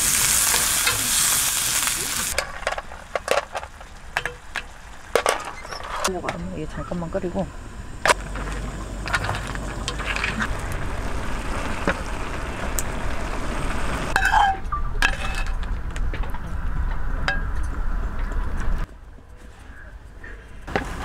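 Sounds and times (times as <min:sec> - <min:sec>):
steady low rumble: 0:06.1 - 0:18.9.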